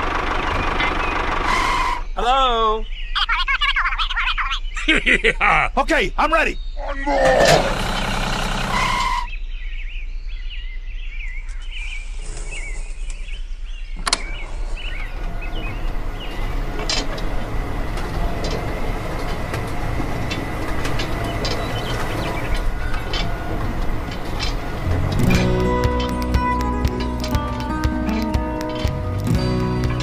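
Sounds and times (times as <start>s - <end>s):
faint bird chirps: 2.0s - 4.9s
discs churning through sand: 7.2s - 9.3s, 14.2s - 30.0s.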